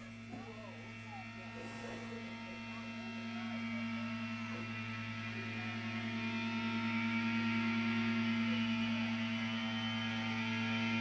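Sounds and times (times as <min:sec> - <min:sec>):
low droning hum: 0:00.0 - 0:11.0.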